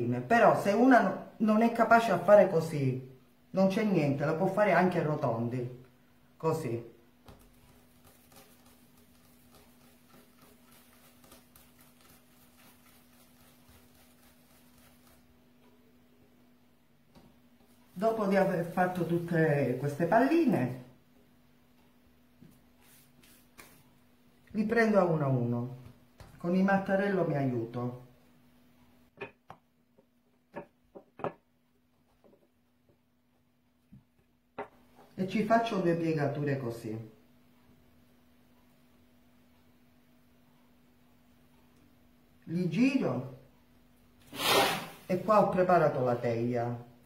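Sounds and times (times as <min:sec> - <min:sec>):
faint steady hum: 0:00.0 - 0:44.3
dough patted on stone worktop: 0:07.2 - 0:15.6, 0:22.4 - 0:24.0, 0:25.8 - 0:26.5, 0:29.1 - 0:33.1
rolling pin knocking on countertop: 0:29.2 - 0:29.7, 0:30.5 - 0:31.4.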